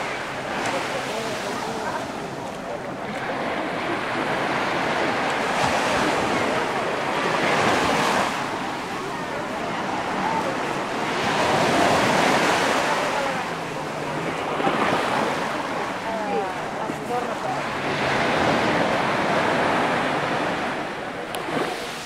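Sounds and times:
surf breaking on sand beach: 0.0 - 22.0.

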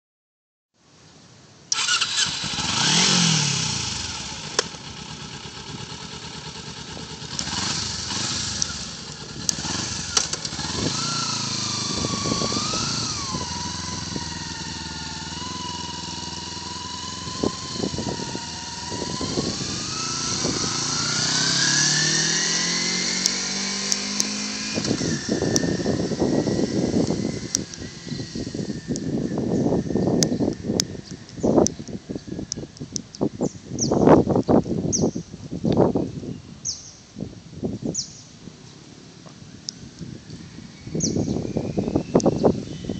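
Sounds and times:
motorcycle engine revving: 1.7 - 32.8, 40.0 - 42.9.

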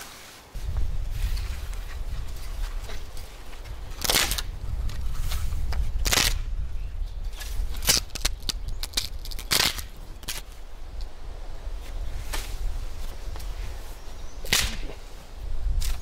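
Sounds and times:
wooden branch snapping: 3.9 - 5.0, 5.7 - 6.5, 7.4 - 10.5, 14.4 - 15.0.

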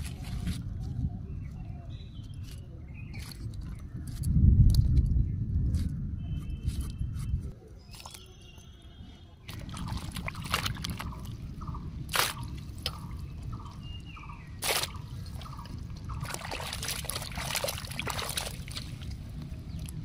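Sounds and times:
water sloshing and dripping: 9.5 - 11.5, 14.6 - 20.0.

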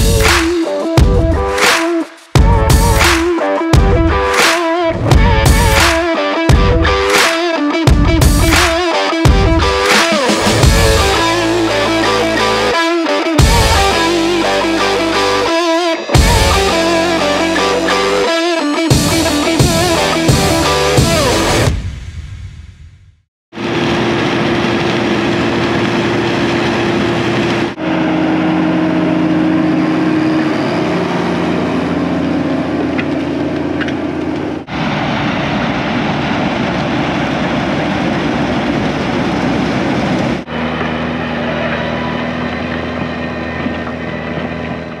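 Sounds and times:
combine harvester running: 23.6 - 45.0
tractor engine running: 23.6 - 45.0.

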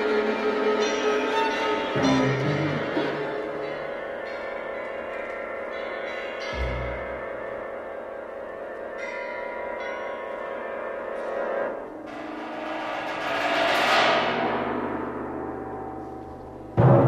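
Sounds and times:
chamber orchestra music: 0.0 - 4.2, 6.5 - 7.7.

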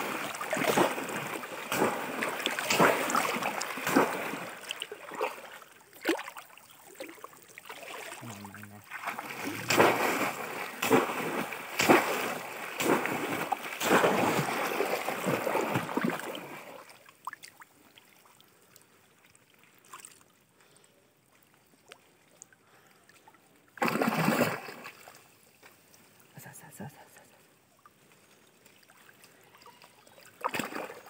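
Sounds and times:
water dripping and trickling: 0.0 - 14.4
heavy splashing in muddy water: 0.0 - 17.0, 23.8 - 25.2, 30.3 - 31.0.

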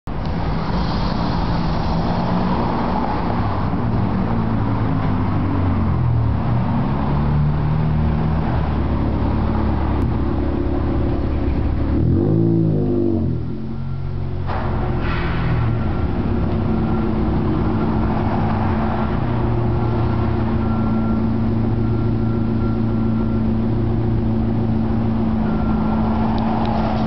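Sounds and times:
vehicles driving past: 0.1 - 27.0
car engine revving: 6.4 - 13.7.

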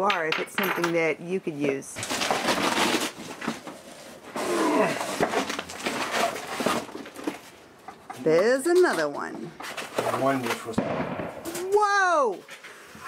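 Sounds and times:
cardboard box scraping and rustling: 2.0 - 7.5.

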